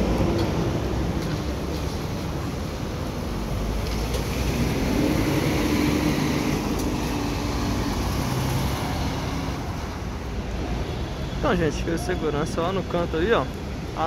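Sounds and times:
coach diesel engine passing: 0.0s - 10.3s
tyres hissing on wet road: 0.0s - 11.7s.

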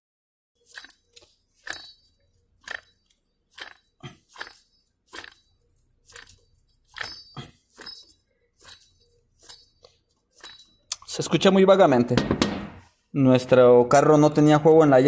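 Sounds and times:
sharp metallic clicks of bearing: 0.6s - 11.2s.

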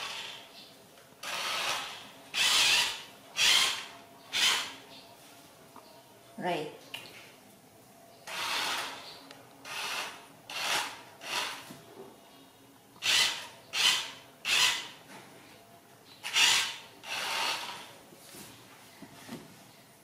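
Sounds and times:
toy car motor whirring: 1.2s - 4.7s, 9.6s - 11.6s, 13.0s - 15.0s, 16.2s - 17.9s.

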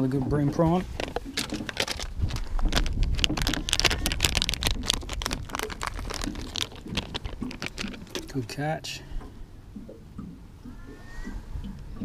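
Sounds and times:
tackle tray rattling: 0.5s - 8.7s
plastic packet crackling: 0.9s - 8.5s.

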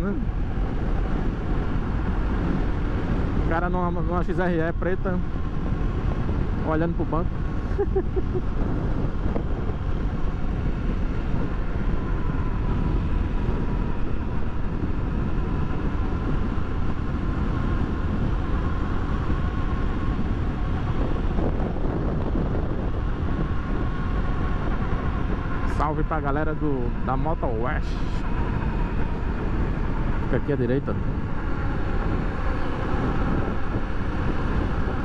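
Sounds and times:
motorcycle engine running: 0.0s - 35.0s
wind rush on microphone: 0.0s - 35.0s.

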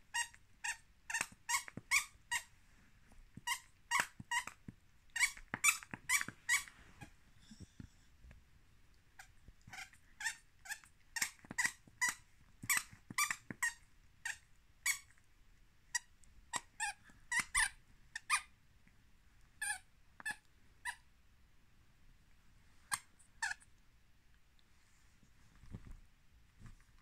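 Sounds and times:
squeaky toy squeaking: 0.1s - 2.5s, 3.4s - 7.1s, 9.2s - 15.1s, 15.9s - 18.5s, 19.6s - 21.0s, 22.9s - 23.7s.

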